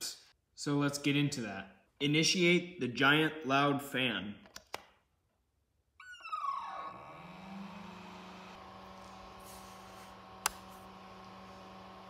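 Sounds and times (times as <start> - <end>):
electric fan spinning up: 6.5 - 12.0.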